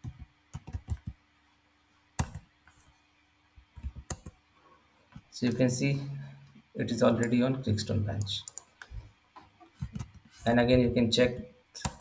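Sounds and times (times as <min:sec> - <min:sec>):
computer keyboard typing: 0:00.0 - 0:01.2, 0:02.2 - 0:02.4, 0:03.8 - 0:04.4, 0:08.2 - 0:08.9, 0:09.8 - 0:10.2, 0:11.8 - 0:12.0.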